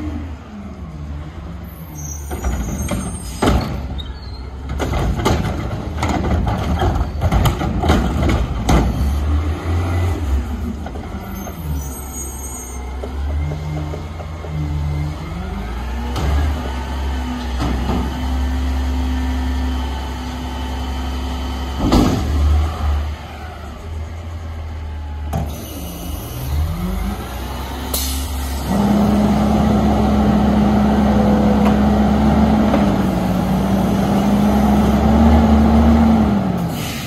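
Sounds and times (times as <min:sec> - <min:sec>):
garbage truck engine running: 0:12.9 - 0:36.9.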